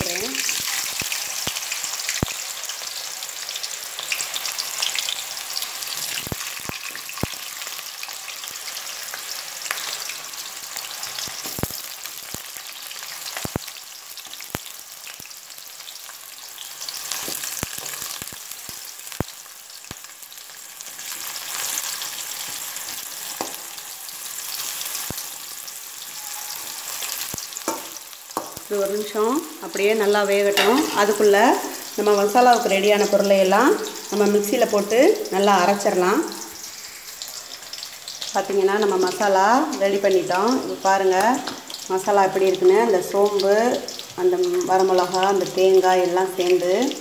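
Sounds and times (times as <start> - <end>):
oil popping and crackling: 0.0 - 2.7, 3.7 - 29.1
frying oil sizzle: 0.0 - 47.0.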